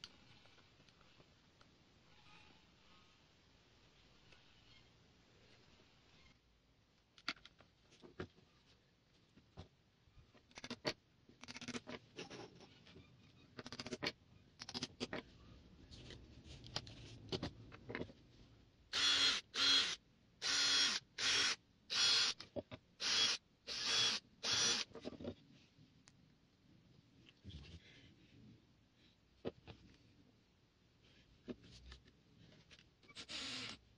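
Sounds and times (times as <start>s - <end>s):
cordless drill-driver running: 18.9s - 22.4s, 23.0s - 24.8s, 33.2s - 33.8s.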